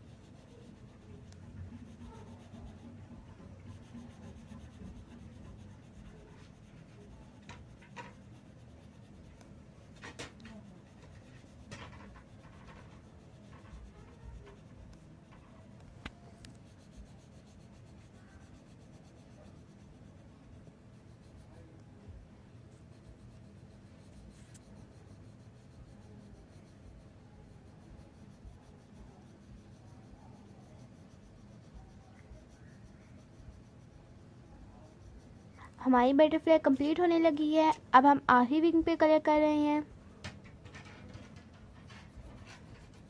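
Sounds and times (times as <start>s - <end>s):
pencil scratching on paper: 0.0s - 38.1s, 40.6s - 43.0s.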